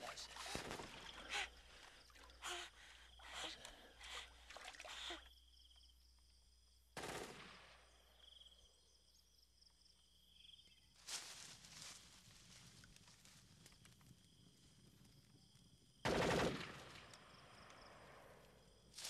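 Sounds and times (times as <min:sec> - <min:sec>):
insect chirring: 0:00.0 - 0:06.9, 0:07.8 - 0:16.0
gunshots: 0:07.0 - 0:07.8, 0:16.1 - 0:17.0.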